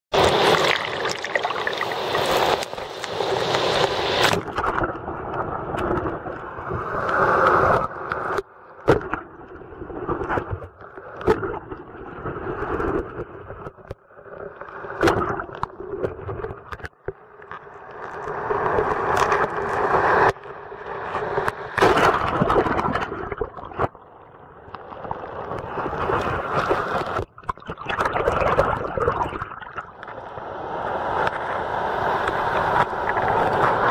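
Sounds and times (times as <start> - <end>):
breaking surf: 0.1 - 5.0, 18.0 - 23.1, 25.3 - 27.3, 29.2 - 33.9
muffled underwater rush: 0.1 - 33.9.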